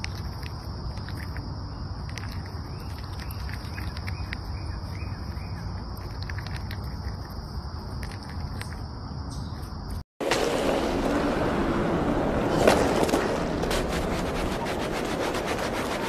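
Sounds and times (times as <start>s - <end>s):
faint bird chirps: 1.6s - 6.3s.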